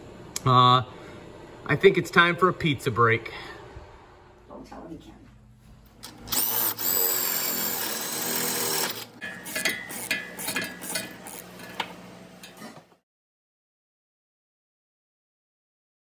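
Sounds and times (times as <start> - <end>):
power drill running: 6.0 - 11.7.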